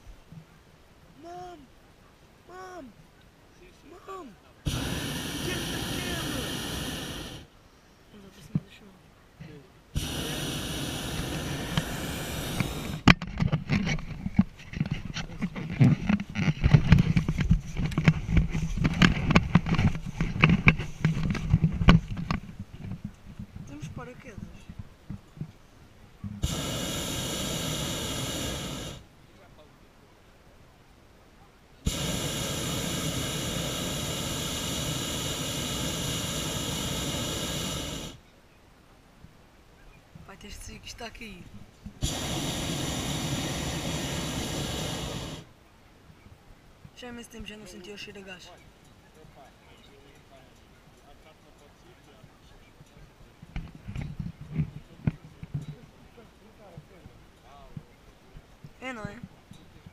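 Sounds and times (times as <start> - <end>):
propane burner roaring: 4.6 - 7.5, 9.9 - 22.4, 26.4 - 29.0, 31.8 - 38.2, 42.0 - 45.5.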